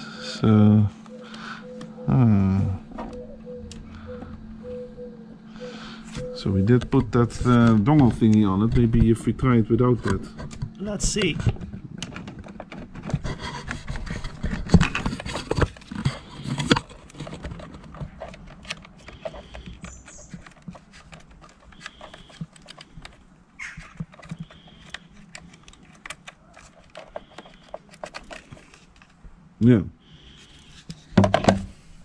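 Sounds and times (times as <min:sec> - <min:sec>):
plastic connector clicking and knocking: 0:10.0 - 0:29.1, 0:30.9 - 0:31.7.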